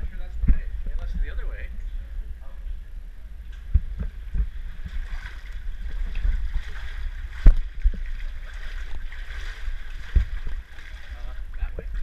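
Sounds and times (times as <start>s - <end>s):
steady low rumble: 0.0s - 12.0s
seawater sloshing around legs: 4.4s - 11.6s.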